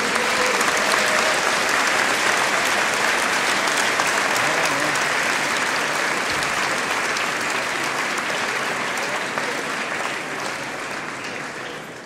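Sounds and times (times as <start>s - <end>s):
large audience applauding: 0.0s - 12.0s.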